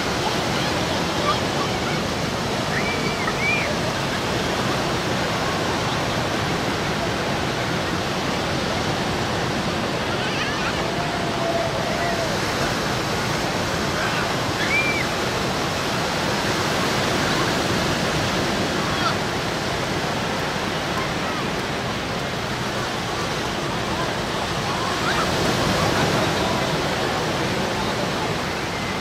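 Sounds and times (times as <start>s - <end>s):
small waves breaking on beach: 0.0s - 29.0s
distant people shouting: 10.2s - 12.5s.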